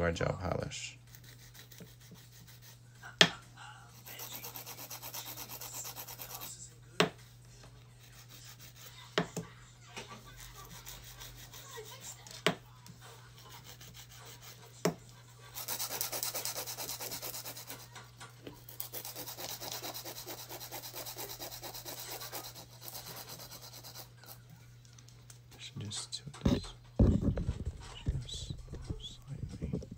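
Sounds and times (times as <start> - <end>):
nail buffer scrubbing: 1.1 - 2.8, 4.0 - 6.5, 10.4 - 12.3, 15.5 - 17.9, 18.7 - 24.4.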